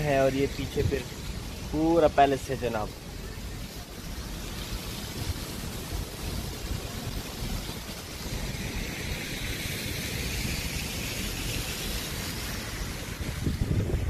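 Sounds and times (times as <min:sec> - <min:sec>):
fountain water splashing: 0:00.0 - 0:14.0
low rumble on microphone: 0:12.8 - 0:14.0.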